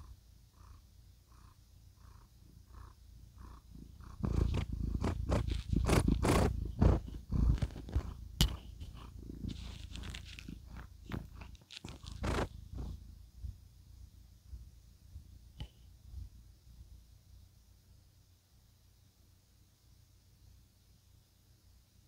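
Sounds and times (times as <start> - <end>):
cat purring: 0.0 - 13.8
microphone handling noise: 4.2 - 13.0.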